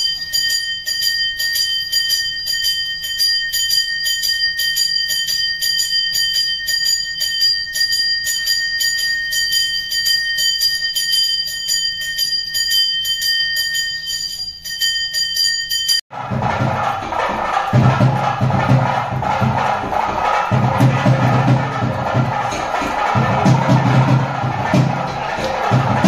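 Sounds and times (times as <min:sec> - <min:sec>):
hand bell ringing: 0:00.0 - 0:16.0, 0:17.5 - 0:26.0
music with drumming: 0:16.1 - 0:26.0.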